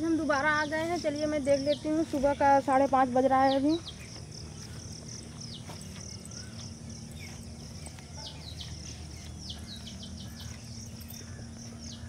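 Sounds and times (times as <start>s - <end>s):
high insect hiss: 0.0s - 12.0s
low hum: 0.0s - 12.0s
birds whistling downward notes: 3.4s - 12.0s.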